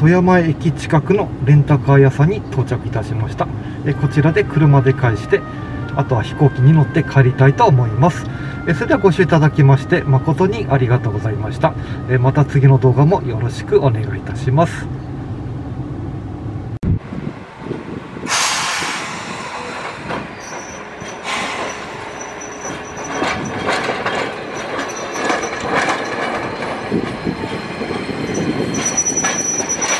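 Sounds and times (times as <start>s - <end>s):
streetcar wheels on rails: 0.0s - 29.9s
high wheel squeal: 18.4s - 29.9s.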